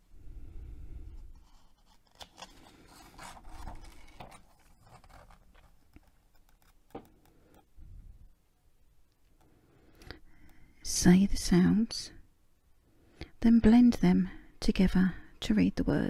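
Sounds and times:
paper pages rustling: 1.3 - 7.1.

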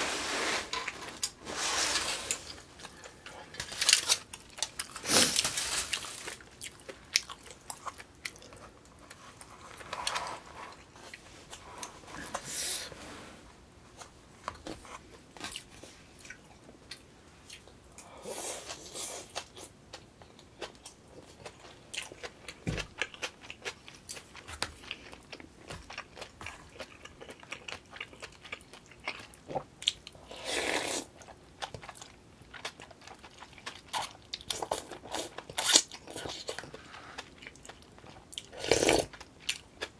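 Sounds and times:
slurping noodles and soup: 30.2 - 31.1, 38.6 - 39.1.

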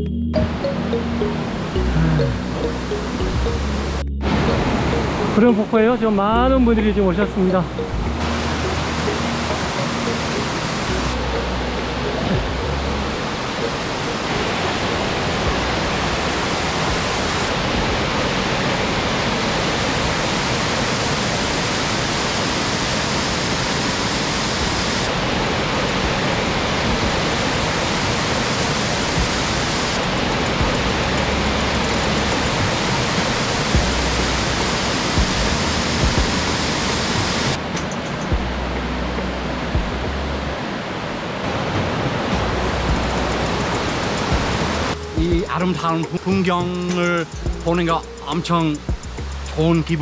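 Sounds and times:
waterfall rushing: 0.4 - 45.2.

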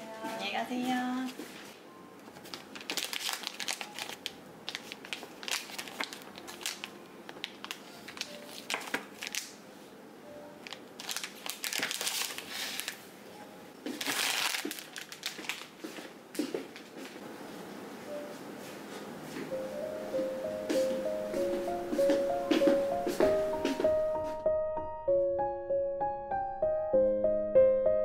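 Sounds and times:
plastic pouches crinkling: 2.4 - 9.6, 10.6 - 13.0, 13.9 - 16.0.

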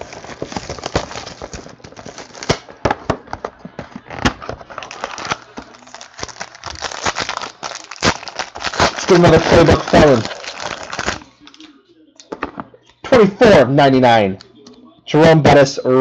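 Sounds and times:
foil pack crinkling: 0.0 - 11.7.

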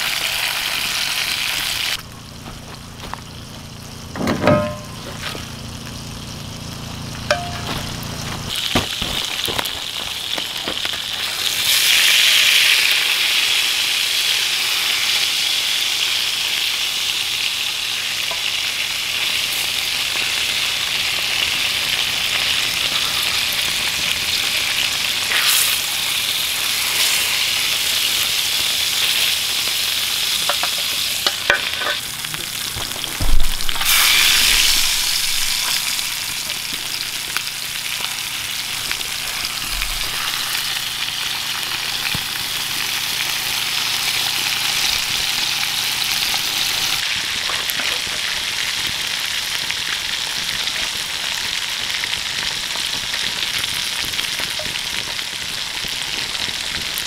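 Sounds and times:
fish sizzling in a pan: 0.0 - 57.0
thump: 33.2 - 33.8.

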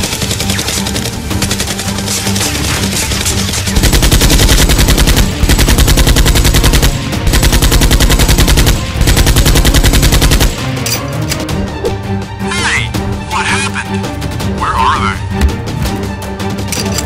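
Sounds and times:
machine-gun fire: 0.0 - 10.6.

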